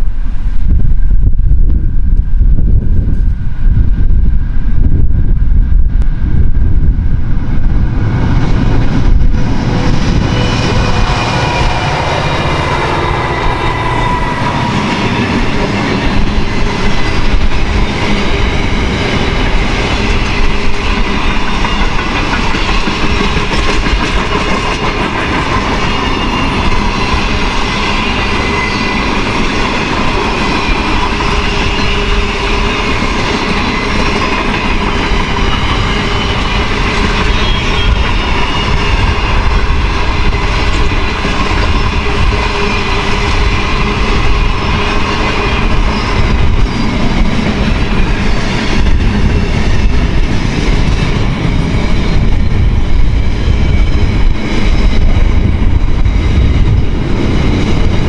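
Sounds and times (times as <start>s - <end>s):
diesel locomotives passing: 0.0s - 58.0s
train wheels clickety-clack: 8.4s - 58.0s.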